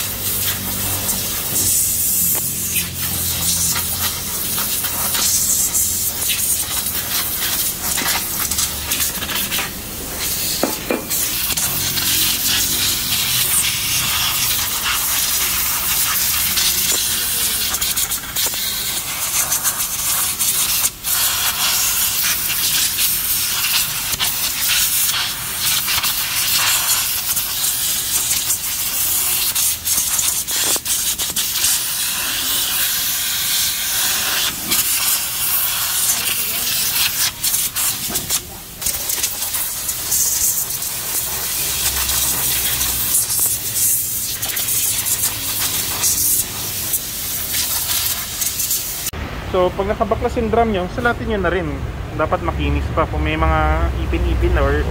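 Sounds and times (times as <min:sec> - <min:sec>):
air blow gun hissing: 0:00.0 - 0:49.2.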